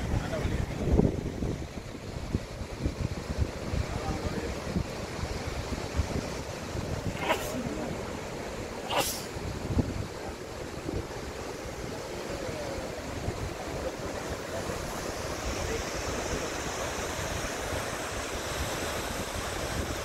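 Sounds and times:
wind buffeting microphone: 0.0s - 12.0s
waterfall roaring: 0.0s - 20.0s.

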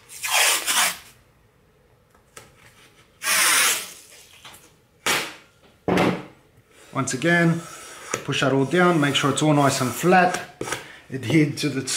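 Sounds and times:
tape ripping off roll: 0.0s - 1.2s, 3.2s - 5.3s.

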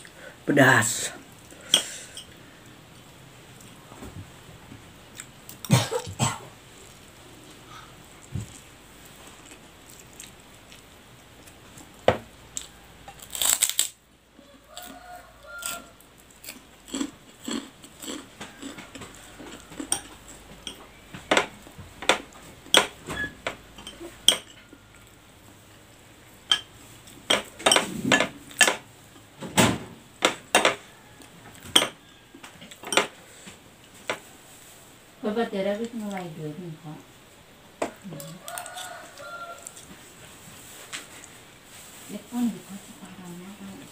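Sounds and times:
metal spoon clinking on ceramic plate: 23.8s - 24.6s, 26.5s - 26.7s.

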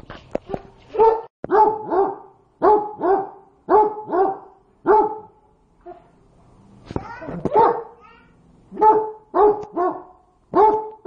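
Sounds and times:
dog barking: 0.5s - 6.1s, 7.5s - 8.0s, 8.7s - 11.0s.

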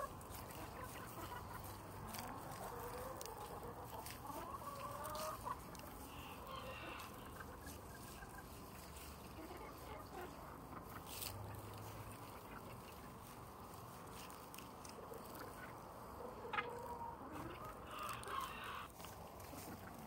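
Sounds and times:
chickens clucking: 0.0s - 20.0s
chicken call: 16.4s - 19.9s.

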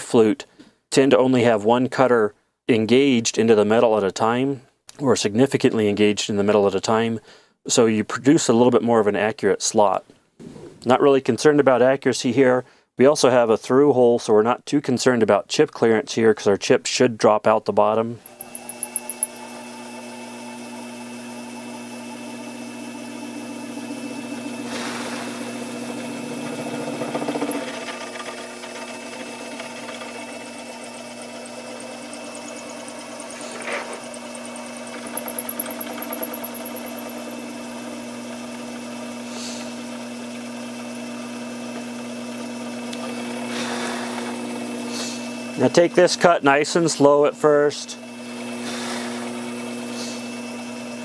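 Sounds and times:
milling machine hum: 18.2s - 51.0s
rapid pulsing vibration: 23.3s - 33.3s, 34.3s - 51.0s.

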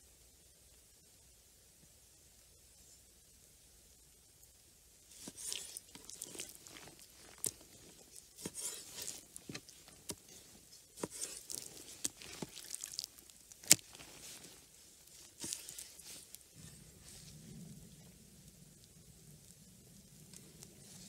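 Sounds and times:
knife slicing wet meat: 8.4s - 9.7s, 11.0s - 13.0s.

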